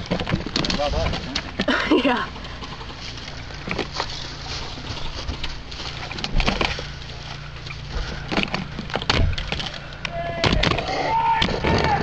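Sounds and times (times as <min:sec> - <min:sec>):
steady low hum: 0:00.0 - 0:12.0
footsteps crunching through dry grass: 0:02.5 - 0:08.9.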